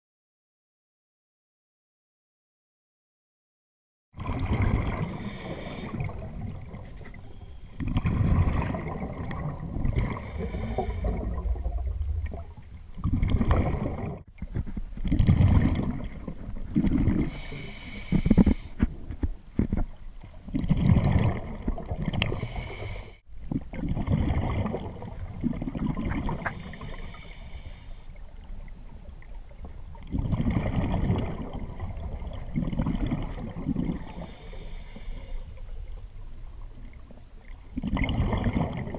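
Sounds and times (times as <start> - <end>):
exhaled bubbles rumbling: 4.2 - 17.5, 18.2 - 22.6, 23.3 - 26.9, 28.2 - 34.4, 35.9 - 38.9
regulator inhale hiss: 5.1 - 6.1, 10.2 - 11.4, 17.3 - 18.8, 22.3 - 23.2, 26.4 - 28.2, 34.0 - 36.0.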